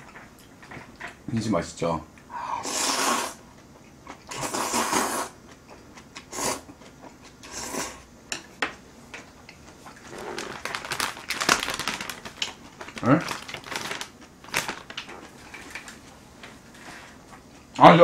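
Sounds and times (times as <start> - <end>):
noodles being slurped: 2.6 - 3.4, 4.3 - 5.4.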